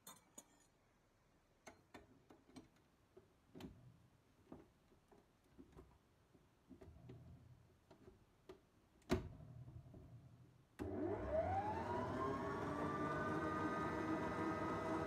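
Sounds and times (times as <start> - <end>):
stand mixer motor whining: 10.8 - 15.0.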